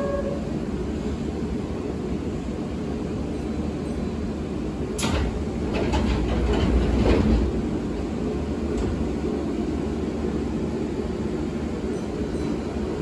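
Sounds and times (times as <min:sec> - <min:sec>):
train car low hum: 0:00.0 - 0:13.0
train doors sliding shut: 0:04.9 - 0:07.8, 0:08.6 - 0:09.2.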